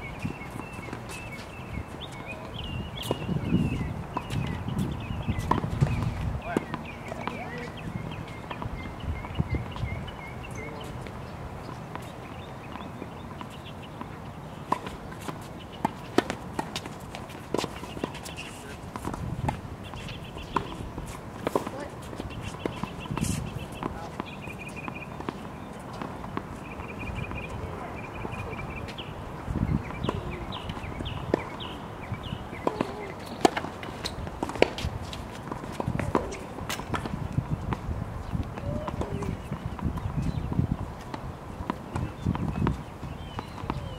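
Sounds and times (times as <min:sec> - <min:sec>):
tennis balls knocking: 0:32.6 - 0:37.8.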